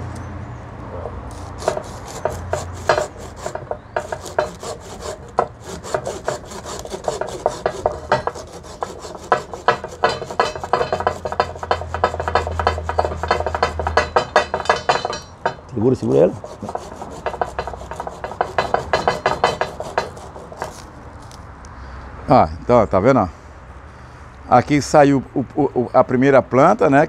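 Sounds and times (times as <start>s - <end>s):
hand saw rasping through branch: 1.3s - 20.9s.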